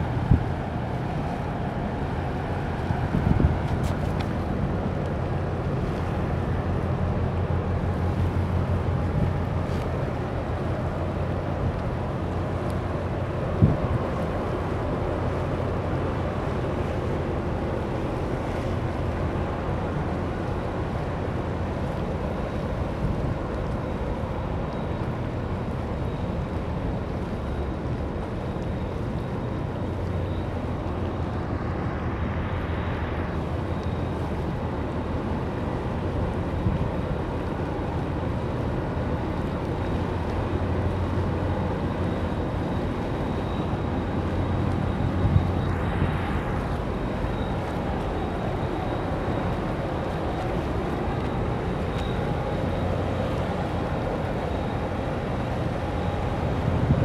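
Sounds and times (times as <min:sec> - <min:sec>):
wind on microphone: 0:00.0 - 0:04.9, 0:56.3 - 0:57.0
ship engine rumble: 0:00.0 - 0:57.0.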